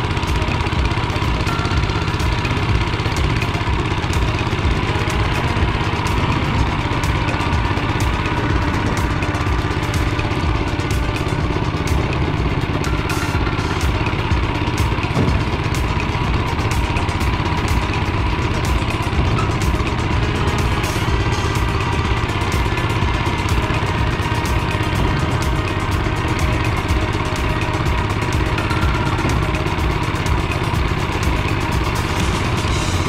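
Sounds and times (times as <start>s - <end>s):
machine rattling and clicking: 0.0s - 33.0s
small petrol engine running: 0.0s - 33.0s.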